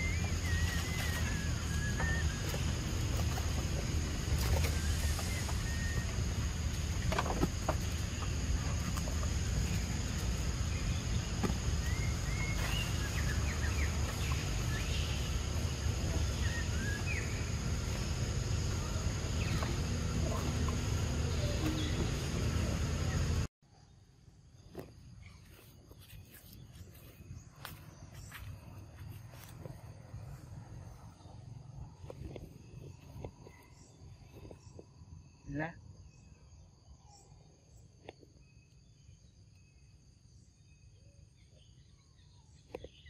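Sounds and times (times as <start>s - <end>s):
high insect-like hum: 0.0s - 23.5s.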